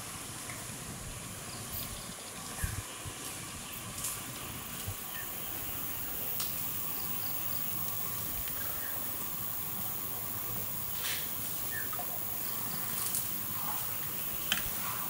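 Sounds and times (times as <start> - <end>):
hissing forest ambience: 0.0 - 15.0
faint bird chirps: 11.6 - 13.0.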